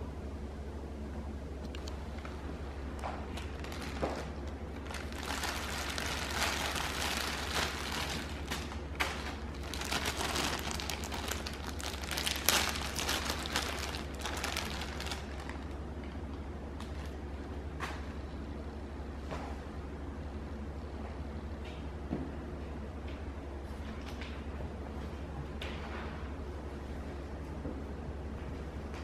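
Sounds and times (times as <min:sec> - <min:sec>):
plastic packaging crinkling: 0:03.0 - 0:15.8.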